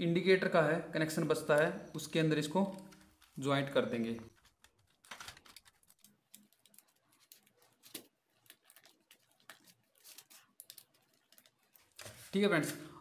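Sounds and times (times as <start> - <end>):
copper wire clicks and scratches: 4.2 - 12.2.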